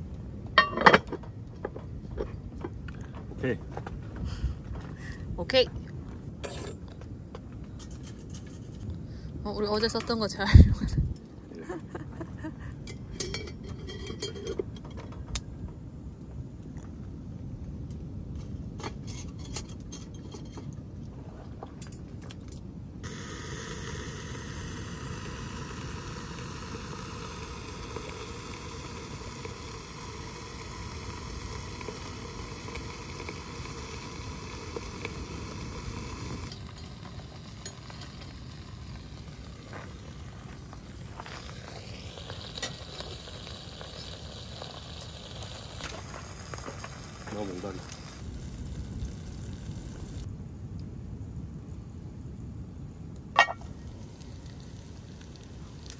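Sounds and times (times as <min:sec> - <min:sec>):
fire hissing: 0:00.0 - 0:00.9, 0:06.2 - 0:20.4, 0:23.0 - 0:55.9
steady low rumble: 0:00.0 - 0:55.9
metal clinks and clanks: 0:12.9 - 0:15.0.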